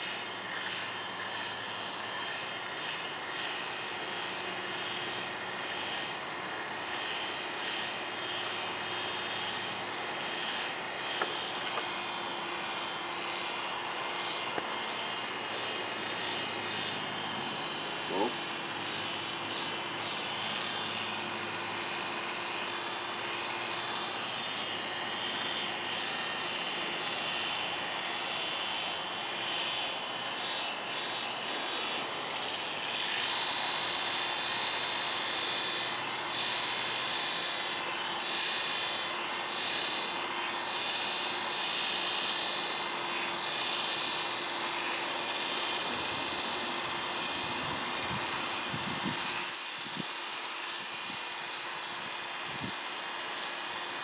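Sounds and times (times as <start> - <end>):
electric clippers buzzing: 0.0 - 54.0.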